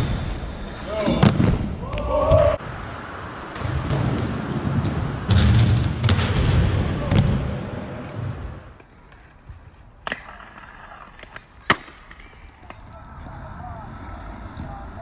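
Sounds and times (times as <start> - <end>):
skate wheels rumbling on wooden ramps: 1.2 - 15.0
skates clacking on concrete: 7.9 - 15.0.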